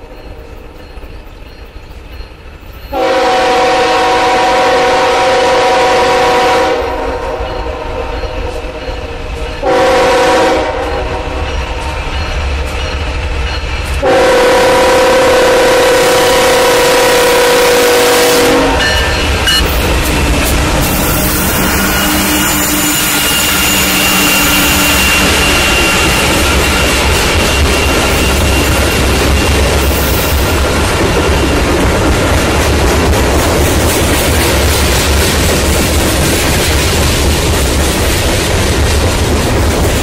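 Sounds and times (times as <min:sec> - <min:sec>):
train wheels on rails: 0:00.0 - 0:40.0
locomotive air horn: 0:02.9 - 0:07.8, 0:09.6 - 0:11.4, 0:14.0 - 0:18.9, 0:20.8 - 0:26.6.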